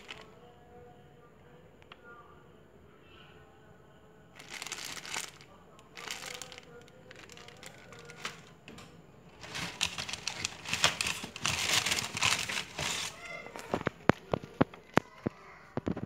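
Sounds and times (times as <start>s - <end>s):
paper and plastic crinkling: 0.0s - 0.2s, 4.4s - 8.5s, 9.3s - 16.0s.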